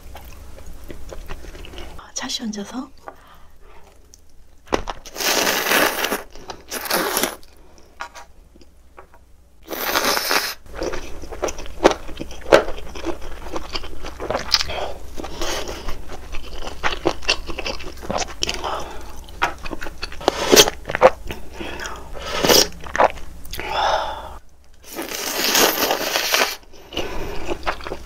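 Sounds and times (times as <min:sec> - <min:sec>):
slurping noodles: 0:05.1 - 0:07.4, 0:09.7 - 0:10.6, 0:24.9 - 0:27.8.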